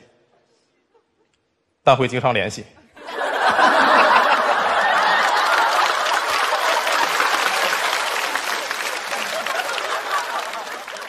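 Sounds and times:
audience laughing and applauding: 3.0 - 11.0.

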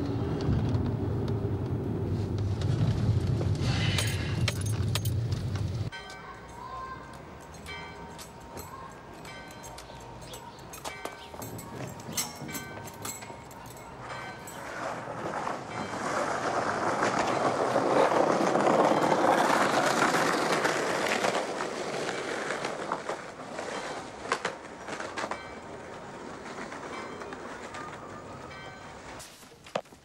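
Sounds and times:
skateboard wheels rolling on pavement: 0.0 - 5.9, 14.0 - 30.0.

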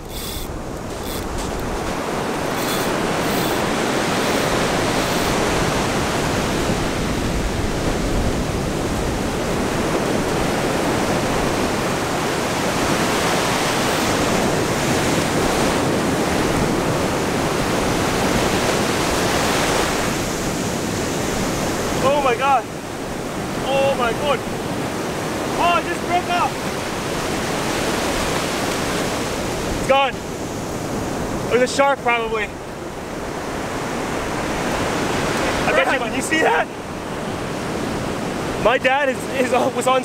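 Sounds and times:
surf breaking on beach: 0.9 - 31.5.

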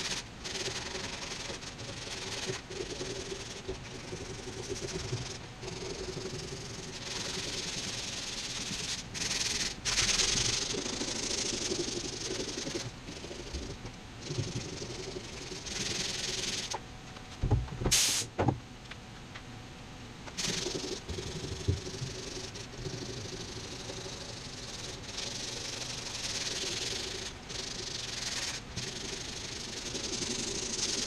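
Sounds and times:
sandpaper scratching by hand: 0.0 - 13.7, 20.4 - 31.0.

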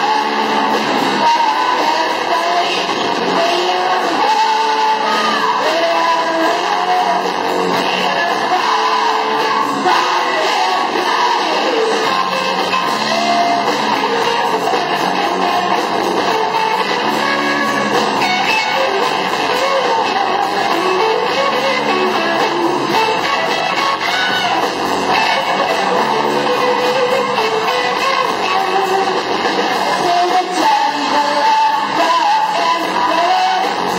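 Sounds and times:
live rock band playing: 0.0 - 33.9
strummed electric guitar: 0.0 - 33.9.

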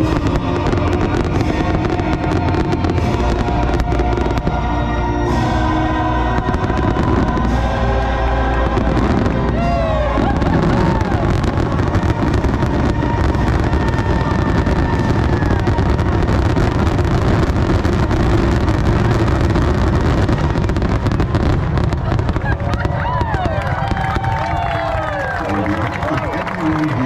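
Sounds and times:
fireworks bursting: 0.0 - 27.0
show music: 0.0 - 27.0.

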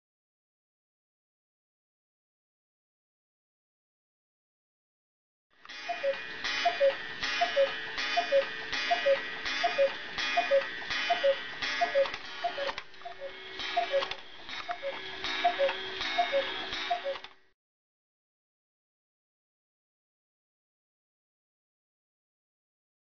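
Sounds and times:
clock mechanism clacking: 5.6 - 17.3
cuckoo clock calling: 5.7 - 17.3.

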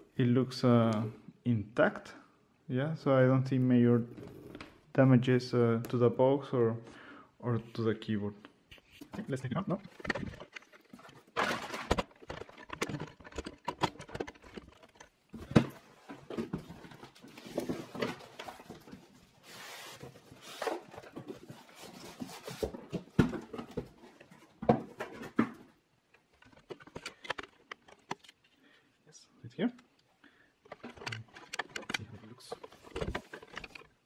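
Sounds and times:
packaging rustling: 9.2 - 24.4, 30.7 - 34.0.

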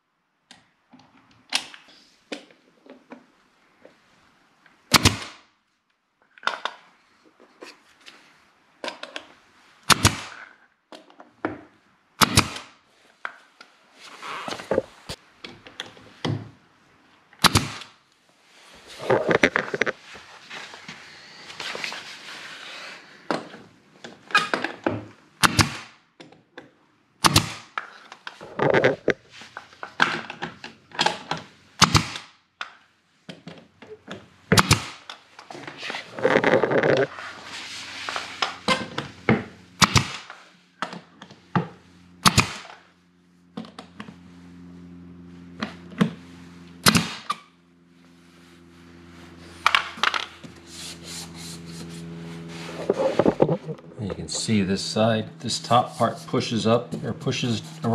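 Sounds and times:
nail gun shots: 4.9 - 5.4, 9.9 - 10.4, 12.2 - 12.8, 17.4 - 18.0, 25.4 - 26.0, 27.2 - 27.8, 31.8 - 32.3, 34.5 - 35.1, 39.8 - 40.4, 42.2 - 42.8, 46.8 - 47.4
machine hum: 41.2 - 57.9.

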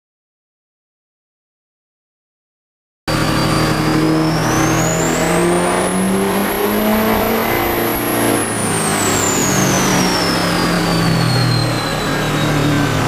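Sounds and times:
diesel engine running under load: 3.1 - 13.0
high turbo whine: 3.1 - 13.0.

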